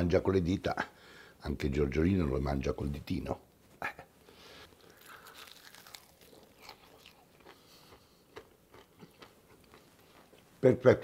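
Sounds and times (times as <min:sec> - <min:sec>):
small crackles: 0:04.6 - 0:07.6
man chewing crisp fried chicken: 0:04.7 - 0:10.4.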